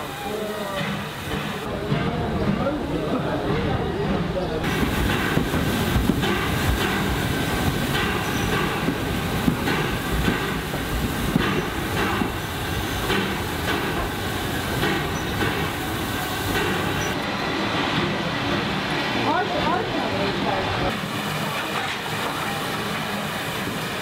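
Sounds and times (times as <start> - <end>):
train wheels knocking on rail joints: 0.7 - 17.2.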